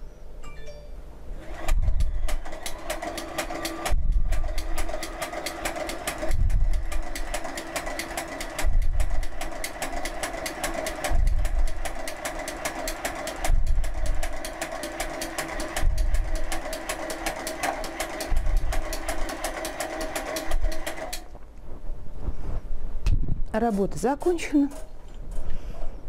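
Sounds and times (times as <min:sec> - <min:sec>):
knitting machine rapid clicking: 0:01.4 - 0:21.3.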